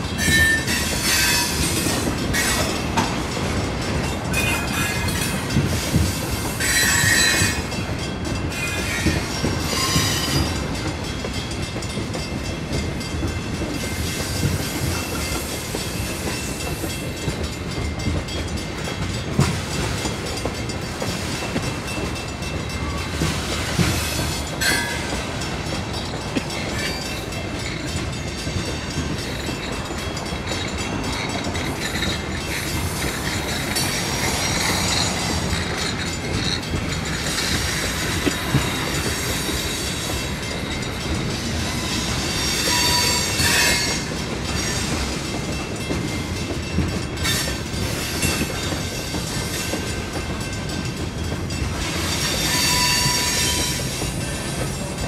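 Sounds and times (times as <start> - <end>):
train wheels rumbling on track: 0.0 - 55.0
high-pitched wheel squeals: 0.2 - 1.8, 6.6 - 7.6, 41.8 - 44.0, 52.1 - 54.0.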